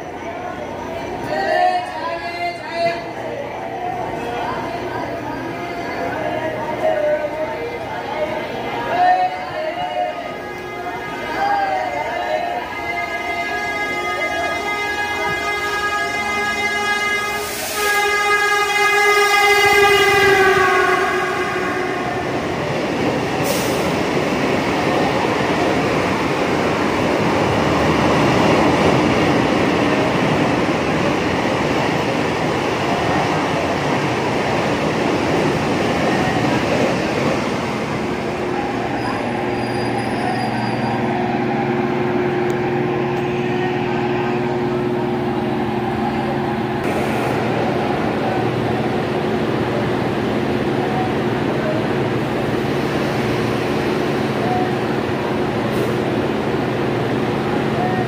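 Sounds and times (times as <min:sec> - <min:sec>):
train rumbling: 0:00.0 - 0:58.0
train horn: 0:10.1 - 0:22.3.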